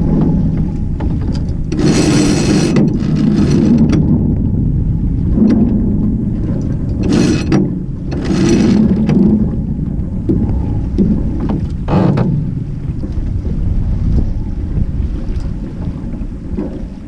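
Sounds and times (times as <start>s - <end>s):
water rushing along hull: 0.0s - 17.0s
wind buffeting microphone: 0.0s - 17.0s
short rasping noises: 1.7s - 4.1s, 6.9s - 9.2s.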